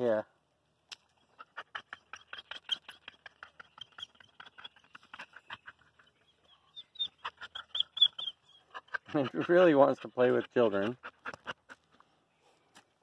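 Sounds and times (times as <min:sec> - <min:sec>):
dog scratching at dirt: 0:01.3 - 0:06.1, 0:07.0 - 0:12.1.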